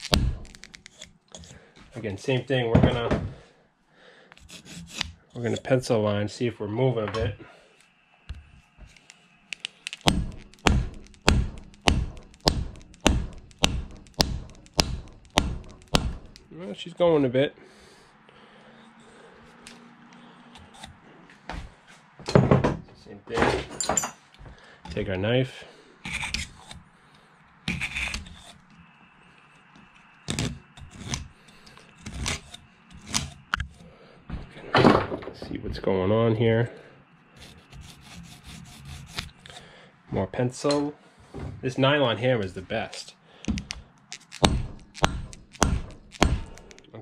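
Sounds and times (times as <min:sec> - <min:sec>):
knife scraping and clicking on axe: 0:00.0 - 0:01.9, 0:04.3 - 0:05.8, 0:18.8 - 0:21.0, 0:26.0 - 0:26.9, 0:27.6 - 0:28.8, 0:29.8 - 0:33.9, 0:37.4 - 0:39.7, 0:43.6 - 0:46.8
hammer knocking wooden axe handle: 0:10.1 - 0:16.4, 0:44.4 - 0:46.7.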